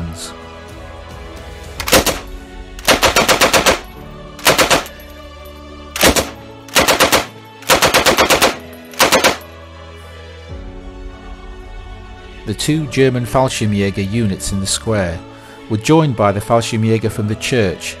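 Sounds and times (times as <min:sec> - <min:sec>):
background music: 0:00.0 - 0:18.0
machine-gun bursts: 0:01.8 - 0:05.0, 0:06.0 - 0:09.4.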